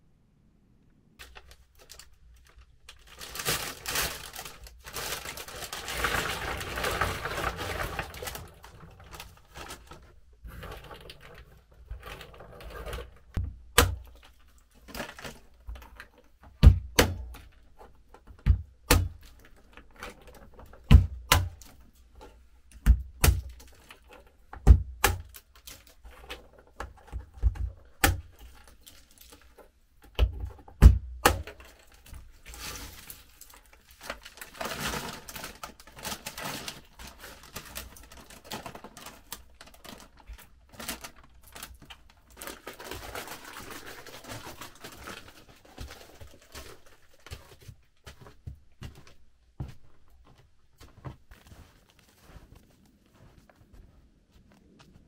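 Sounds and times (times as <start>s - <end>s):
rustling and scraping: 1.2s - 16.6s, 25.2s - 30.8s, 31.4s - 55.0s.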